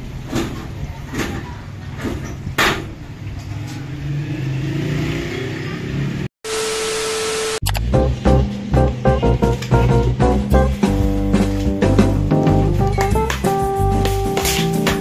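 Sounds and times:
static hiss with hum tone: 0:06.5 - 0:07.6
low drone rising in pitch: 0:07.5 - 0:11.3.

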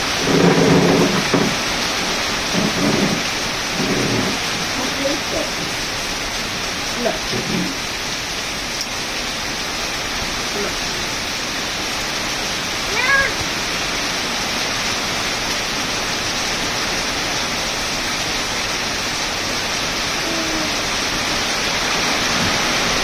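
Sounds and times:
heavy rain on leaves and gravel: 0:00.0 - 0:23.0.

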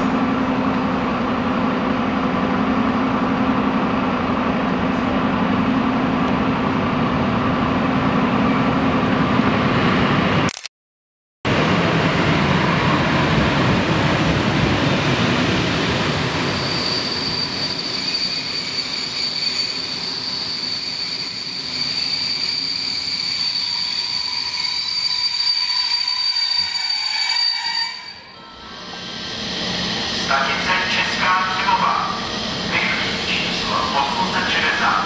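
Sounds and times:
high-pitched brake squeal: 0:15.6 - 0:30.0.

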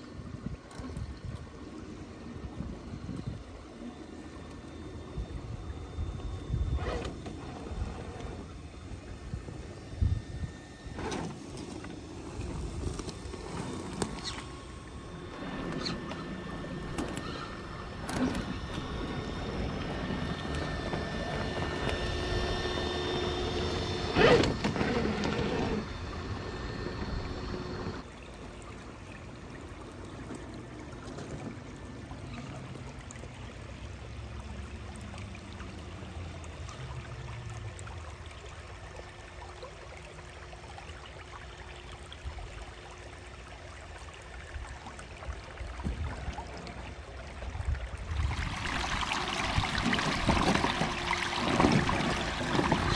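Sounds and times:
water trickling and splashing: 0:00.0 - 0:27.0, 0:28.0 - 0:52.9
electric motor humming: 0:00.7 - 0:28.1, 0:48.5 - 0:52.9.

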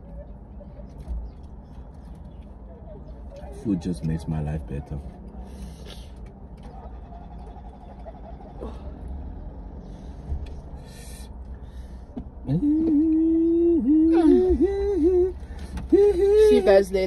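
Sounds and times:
hissing breaths: 0:08.6 - 0:12.4
car cabin rumble: 0:11.4 - 0:17.0
person humming: 0:12.5 - 0:16.7.

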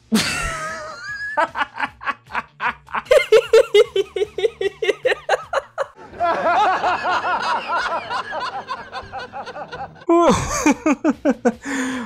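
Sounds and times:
man laughing hard: 0:00.1 - 0:11.6.

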